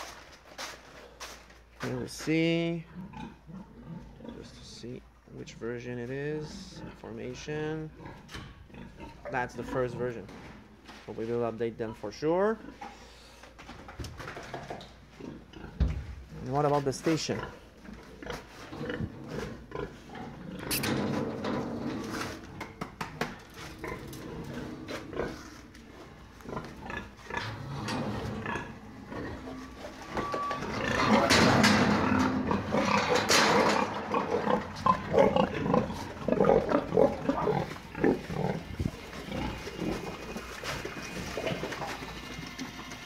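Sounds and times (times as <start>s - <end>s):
pigs grunting and squealing: 2.8s - 5.0s, 6.3s - 10.6s, 14.2s - 43.0s
knocks and clatter: 29.9s - 35.0s.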